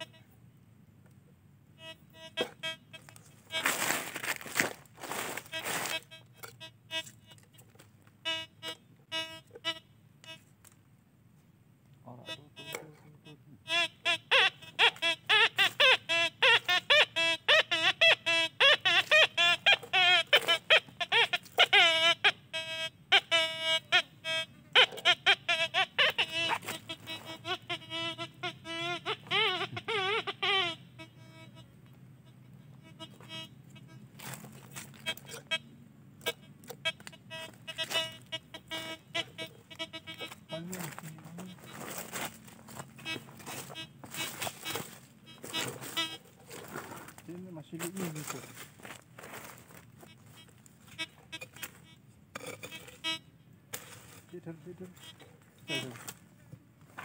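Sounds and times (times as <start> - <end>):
metal detector warbling tones: 0.0 - 0.3, 1.8 - 7.6, 8.2 - 10.4, 12.2 - 53.3, 53.9 - 56.0
footsteps rustling dry leaves: 3.2 - 6.1, 34.2 - 35.0, 40.6 - 50.4.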